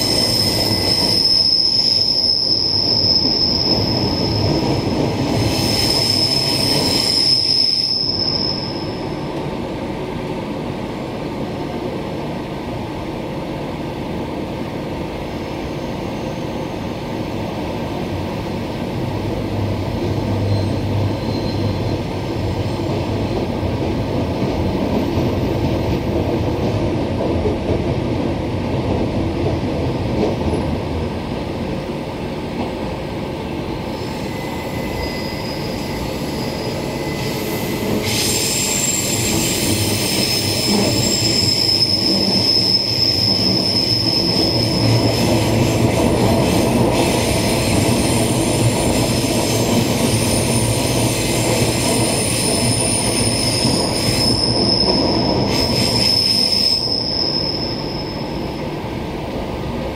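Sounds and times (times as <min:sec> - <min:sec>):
high wheel squeal: 0:00.0 - 0:09.2, 0:20.2 - 0:22.9, 0:33.9 - 0:45.6, 0:47.3 - 0:58.6
rumble of train wheels on track: 0:00.0 - 0:59.9.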